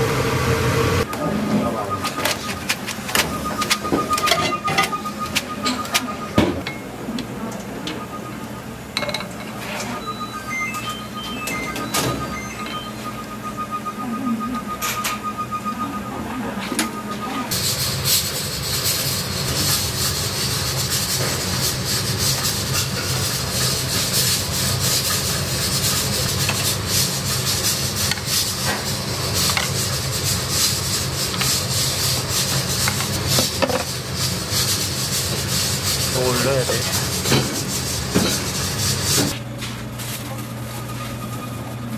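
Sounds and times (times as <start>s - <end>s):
rapid electronic beeping: 1.0s - 6.5s, 10.0s - 16.2s
utensils and bowls clattering: 1.6s - 6.9s, 9.0s - 10.0s, 20.8s - 39.3s
kitchen rush and hiss: 17.5s - 39.4s.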